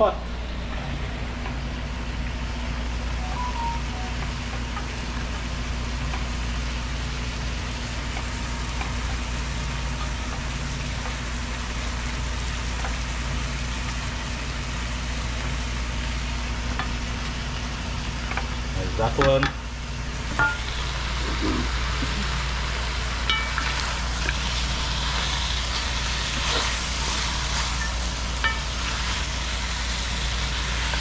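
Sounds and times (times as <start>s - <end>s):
low hum: 0.0s - 10.7s.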